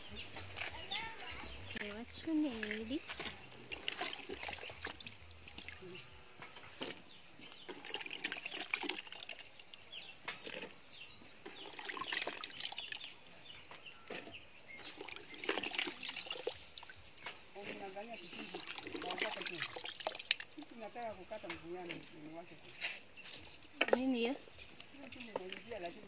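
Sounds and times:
small water splashes and drips: 0:01.9 - 0:21.0.

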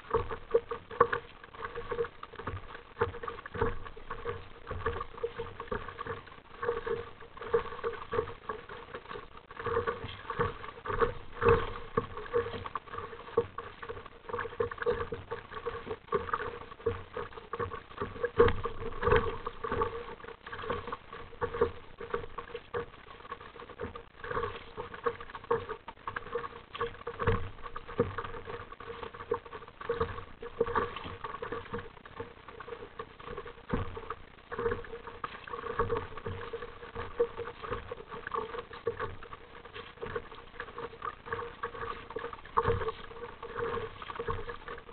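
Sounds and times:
paddle strokes splashing: 0:00.0 - 0:44.9
water slapping kayak hull: 0:00.0 - 0:44.9.

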